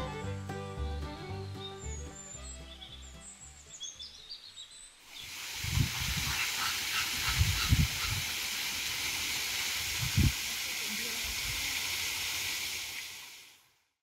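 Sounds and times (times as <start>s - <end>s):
background music: 0.0s - 4.2s
bird chirps: 1.5s - 5.3s
waterfall rushing into pool: 5.1s - 13.7s
wind buffeting microphone: 5.6s - 6.4s, 7.2s - 8.3s, 9.9s - 10.4s.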